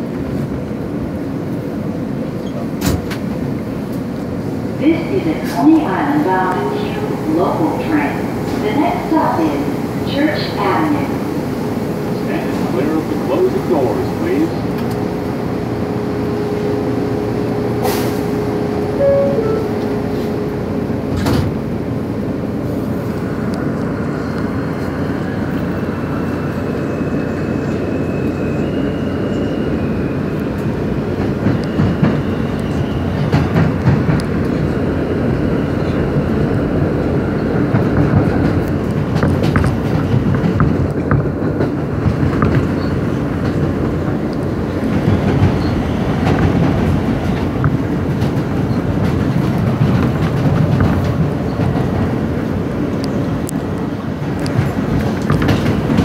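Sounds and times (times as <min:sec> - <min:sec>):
train wheels rumbling on rail: 0:00.0 - 0:56.0
wheels clacking over rail joints: 0:54.2 - 0:56.0.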